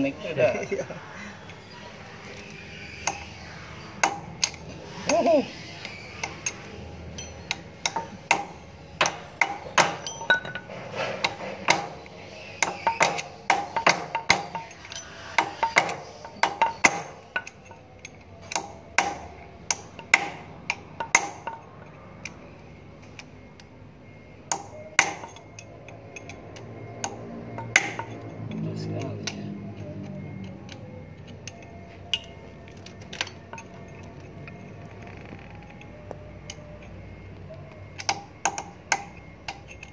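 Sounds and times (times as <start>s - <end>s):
hammer striking steel punch: 7.8s - 10.6s, 11.2s - 12.0s, 12.6s - 14.8s, 15.4s - 17.2s, 18.5s - 21.6s, 24.5s - 25.4s, 27.0s - 28.1s.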